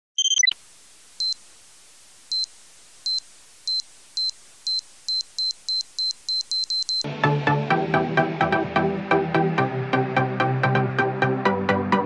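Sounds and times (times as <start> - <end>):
short high electronic beeps: 0.2 - 0.6, 4.2 - 7.0
two-tone chirp: 0.2 - 0.6, 3.7 - 7.1.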